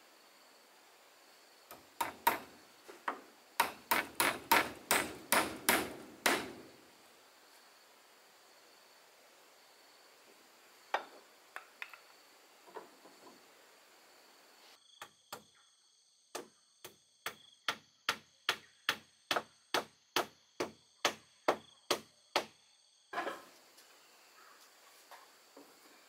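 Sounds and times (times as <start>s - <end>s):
hammer driving nails into wood: 1.7s - 2.5s, 3.1s - 6.7s.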